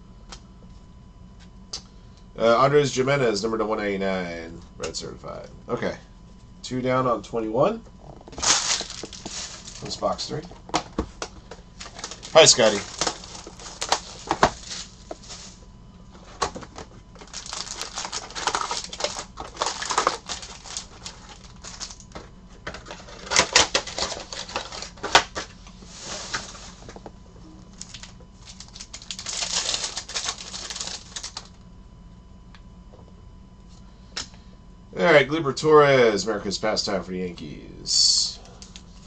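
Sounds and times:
foil packs rustling and crinkling: 0:08.2 - 0:15.6, 0:16.2 - 0:31.6.

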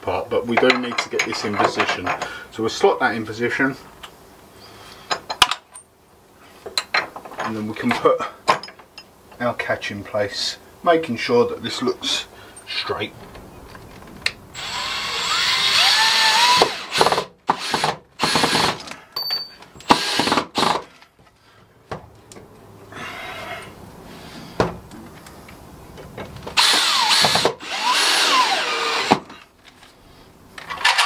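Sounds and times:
cordless drill driving screws: 0:14.6 - 0:18.9, 0:19.8 - 0:20.8, 0:26.6 - 0:29.2.

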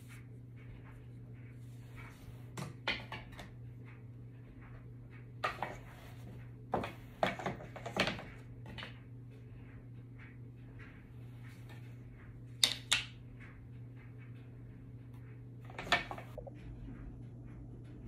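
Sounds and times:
steady low hum: 0:00.0 - 0:18.0
wooden loom knocks and clacks: 0:02.6 - 0:09.0, 0:15.7 - 0:16.5.

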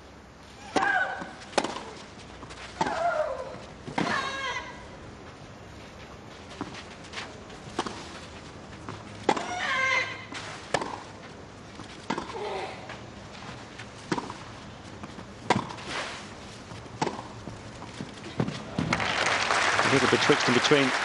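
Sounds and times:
tennis ball struck by rackets: 0:00.7 - 0:02.0, 0:09.2 - 0:11.2, 0:12.0 - 0:12.4, 0:14.0 - 0:14.4, 0:15.4 - 0:16.1, 0:17.0 - 0:17.4.

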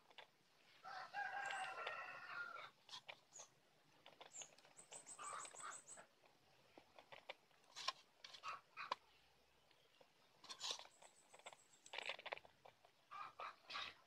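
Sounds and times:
faint rooster crowing: 0:00.8 - 0:02.8.

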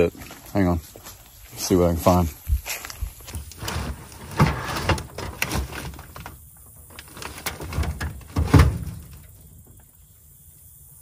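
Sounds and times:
dull thump: 0:07.7 - 0:09.8.

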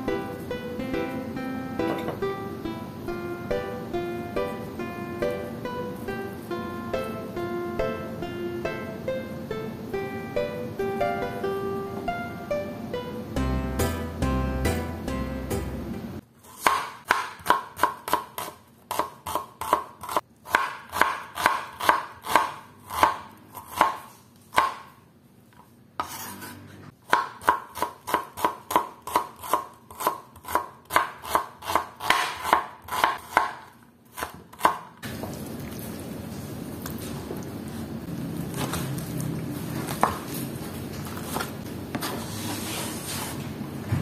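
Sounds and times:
knife chopping on cutting board: 0:16.5 - 0:25.0, 0:26.0 - 0:34.9.

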